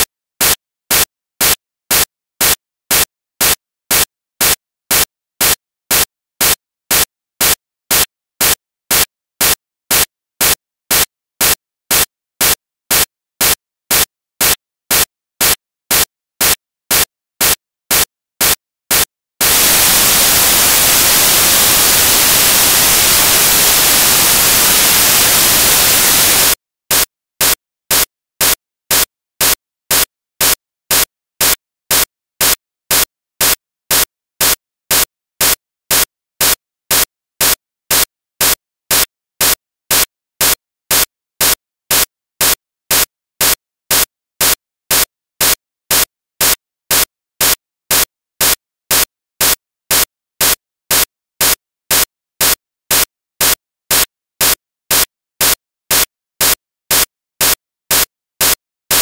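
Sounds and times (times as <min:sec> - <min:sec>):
short bursts of hiss: 0:18.4 - 0:29.6.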